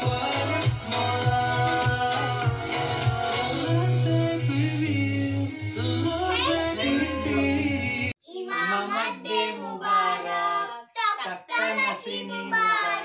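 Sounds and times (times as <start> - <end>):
song with strong bass: 0.0 - 8.1
child singing alone: 6.1 - 7.7, 8.3 - 13.0.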